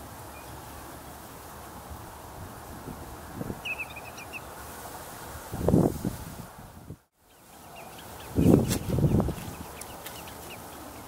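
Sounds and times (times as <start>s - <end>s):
outdoor background hiss: 0.0s - 11.0s
high bird chirps: 3.6s - 4.5s, 7.3s - 11.0s.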